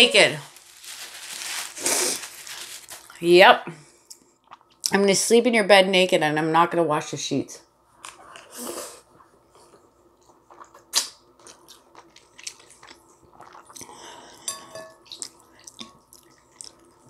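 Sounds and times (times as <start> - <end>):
chewing: 9.7 - 14.0, 15.1 - 17.0.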